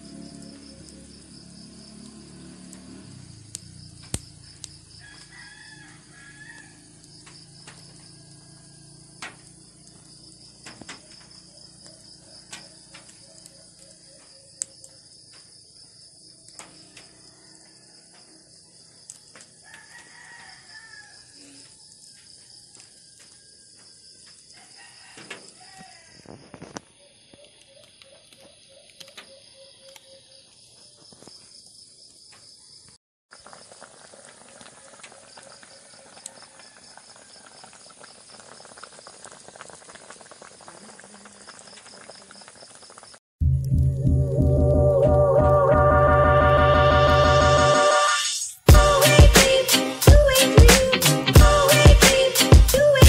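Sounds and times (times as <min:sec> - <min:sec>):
sharp pops of fire: 0:02.7 - 0:05.3, 0:09.2 - 0:09.5, 0:10.6 - 0:11.4
wood fire crackling: 0:03.5 - 0:05.3, 0:33.3 - 0:43.2
faint rooster crowing: 0:04.9 - 0:08.9, 0:16.8 - 0:23.8, 0:24.5 - 0:26.5, 0:34.5 - 0:37.8
high pulsing chirr: 0:43.4 - 0:51.9.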